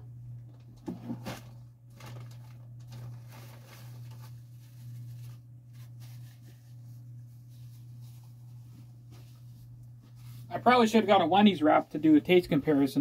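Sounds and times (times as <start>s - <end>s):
steady low hum: 0.0s - 13.0s
paper packaging rustling: 1.0s - 6.9s.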